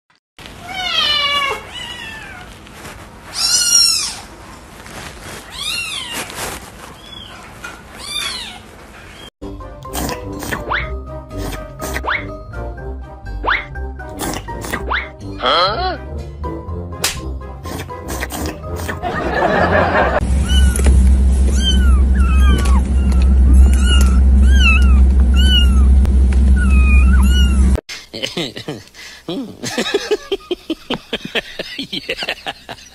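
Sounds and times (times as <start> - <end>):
cat meowing: 0.6 - 2.5, 3.4 - 4.2, 5.5 - 6.3, 20.4 - 20.9, 21.5 - 25.9, 26.6 - 27.8
kittens mewing: 3.4 - 4.3, 20.4 - 20.9, 21.5 - 26.0, 26.6 - 27.8
steady low hum: 18.5 - 32.9.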